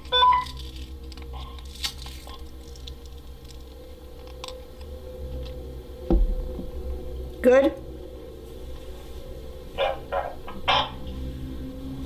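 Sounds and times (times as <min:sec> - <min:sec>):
steady low hum: 0:00.0 - 0:12.0
dull thump: 0:06.1 - 0:06.8.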